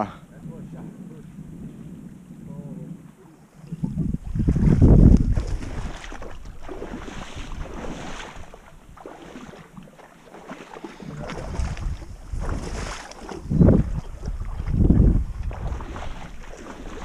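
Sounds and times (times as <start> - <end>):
wind buffeting microphone: 0.0 - 9.8, 11.0 - 17.0.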